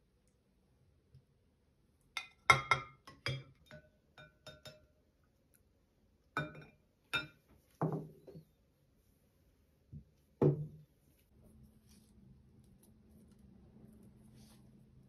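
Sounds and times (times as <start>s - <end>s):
utensil clinking against a bowl: 2.2s - 5.0s.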